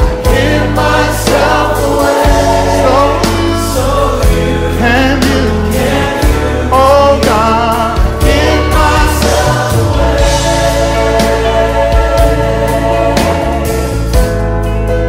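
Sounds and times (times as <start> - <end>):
gospel singing voices: 0.0 - 14.3
held bass notes: 0.0 - 15.0
steady beat: 8.0 - 14.3.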